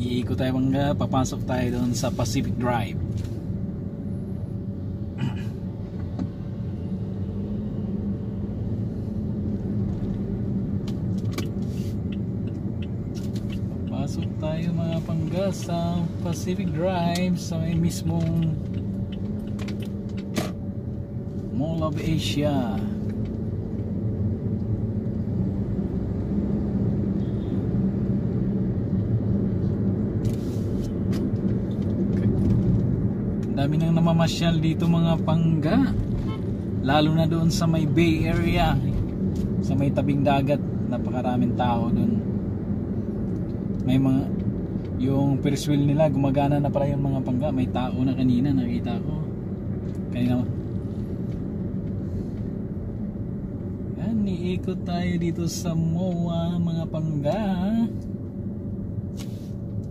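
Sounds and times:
car engine and tyre hum: 0.0s - 59.9s
brief hiss: 59.1s - 59.6s.

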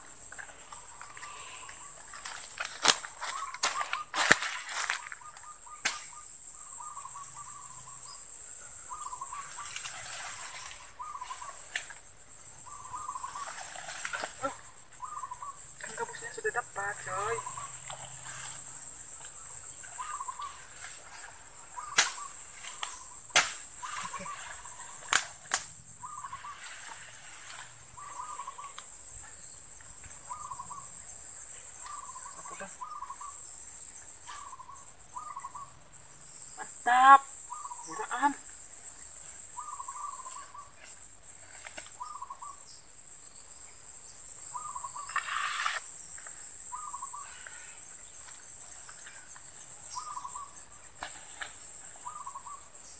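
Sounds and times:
insects droning: 0.0s - 52.9s
short chirping call: 14.4s - 16.0s, 21.7s - 25.0s.

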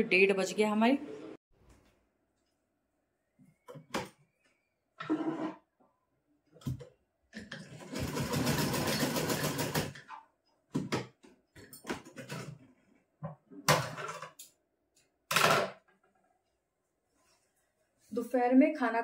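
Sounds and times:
sewing machine clattering: 7.6s - 10.0s.

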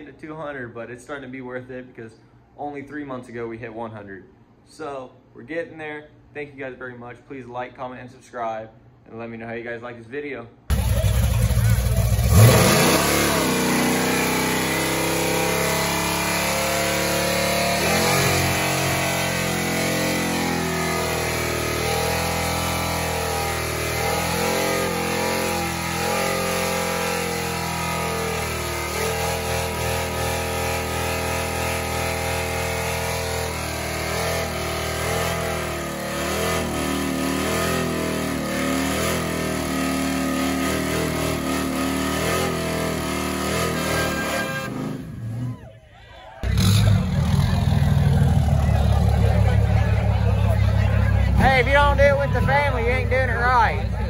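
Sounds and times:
truck engine revving hard: 10.7s - 45.6s, 46.4s - 54.0s.

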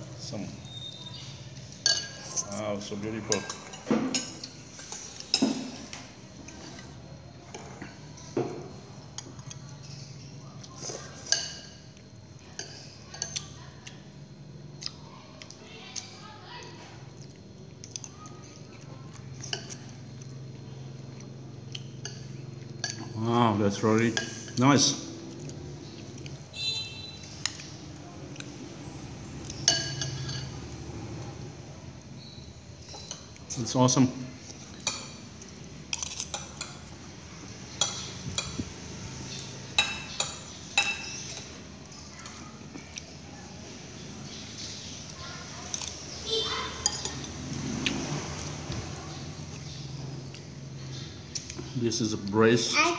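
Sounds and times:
spoon clinking on china plate: 1.8s - 2.4s, 29.5s - 30.6s, 39.8s - 41.5s.

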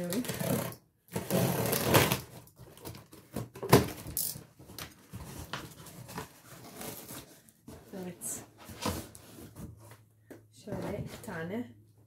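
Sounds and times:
packing tape ripping: 0.1s - 3.0s
cardboard scraping and rustling: 0.2s - 10.0s.

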